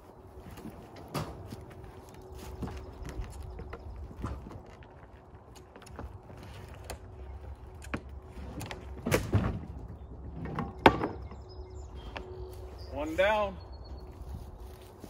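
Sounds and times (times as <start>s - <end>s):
log thudding on wooden trailer bed: 8.6s - 11.4s.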